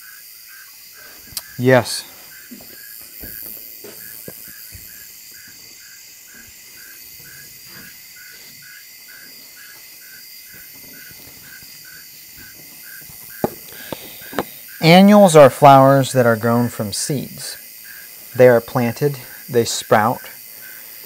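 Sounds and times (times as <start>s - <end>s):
crickets trilling: 0.0s - 21.0s
faint knocks: 12.3s - 14.5s.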